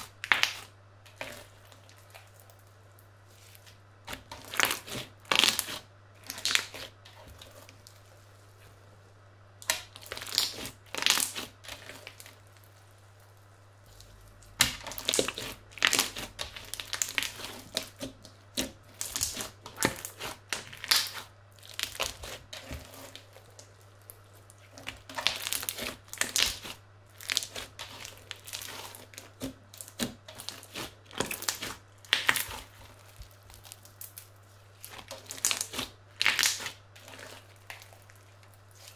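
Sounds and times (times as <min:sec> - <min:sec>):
crunchy slime crackling: 0:00.0 - 0:09.0, 0:09.6 - 0:38.9
faint low hum: 0:00.0 - 0:38.9.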